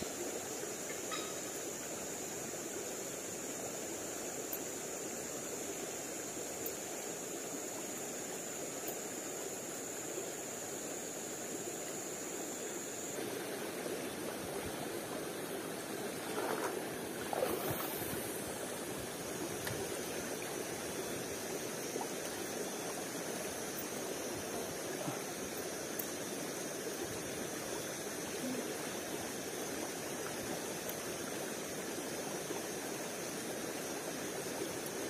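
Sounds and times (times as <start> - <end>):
thin high steady tone: 0.0 - 13.2
stream running: 0.0 - 35.0.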